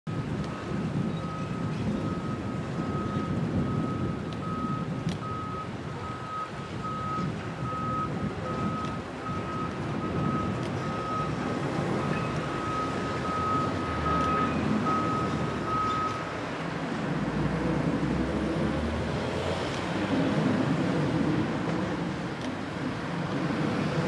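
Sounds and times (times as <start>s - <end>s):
excavator diesel engines running: 0.2s - 24.0s
reversing alarm beeping: 1.2s - 16.2s.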